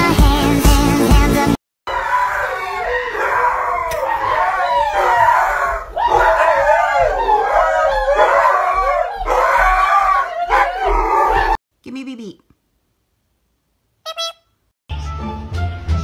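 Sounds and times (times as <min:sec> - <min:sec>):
dog howling: 0:01.9 - 0:11.6.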